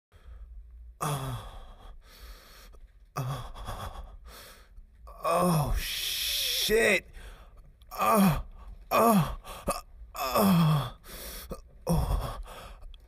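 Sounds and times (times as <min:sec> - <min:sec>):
person sighing: 0:08.0 - 0:12.7.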